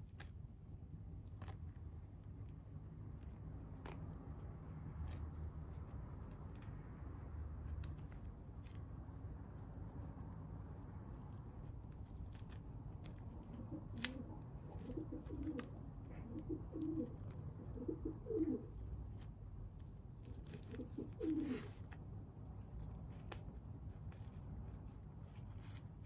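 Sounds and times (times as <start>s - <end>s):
bandage rustling: 0.0s - 26.0s
pigeon cooing: 13.3s - 18.8s, 20.4s - 21.8s.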